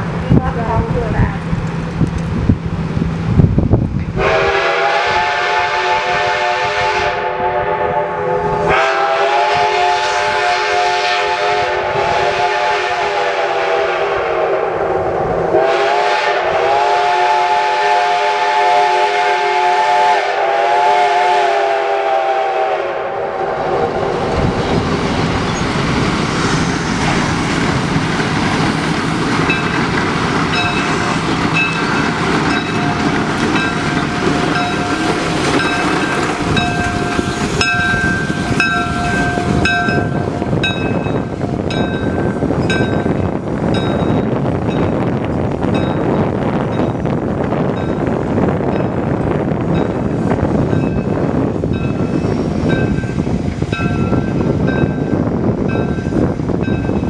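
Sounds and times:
train rumbling and rattling on rails: 0:00.0 - 0:57.0
steam whistle blasts: 0:04.2 - 0:23.7.

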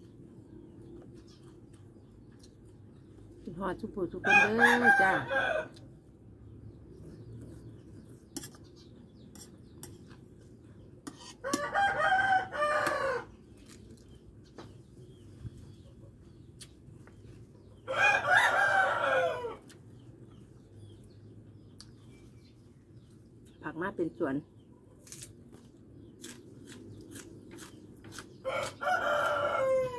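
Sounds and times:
rooster crowing: 0:04.3 - 0:05.8, 0:11.4 - 0:13.3, 0:17.8 - 0:19.7, 0:28.4 - 0:29.9.

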